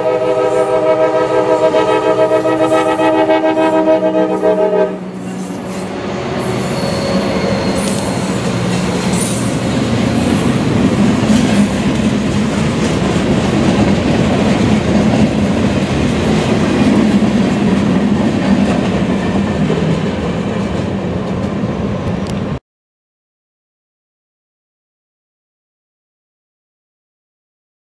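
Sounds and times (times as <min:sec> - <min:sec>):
freight train passing: 0:00.0 - 0:22.6
wheels rattling on rail: 0:05.0 - 0:22.6.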